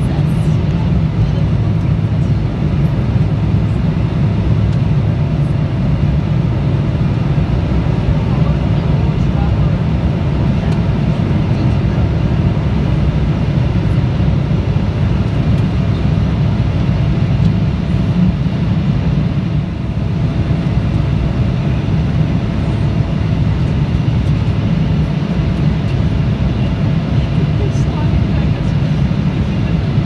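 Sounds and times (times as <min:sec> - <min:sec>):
jet engine rumble in cabin: 0:00.0 - 0:30.0.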